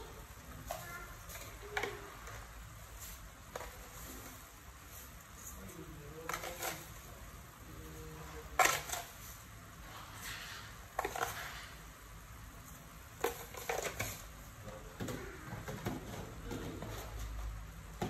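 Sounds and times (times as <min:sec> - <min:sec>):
pot simmering: 0:00.0 - 0:03.5.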